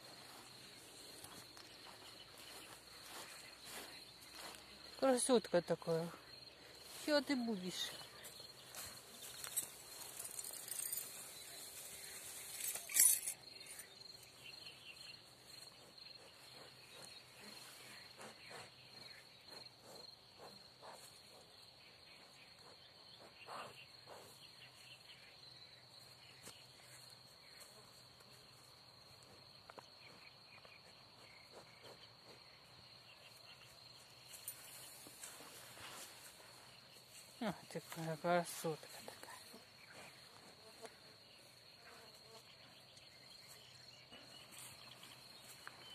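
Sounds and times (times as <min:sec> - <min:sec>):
high-pitched insect trill: 0:00.0 - 0:20.6.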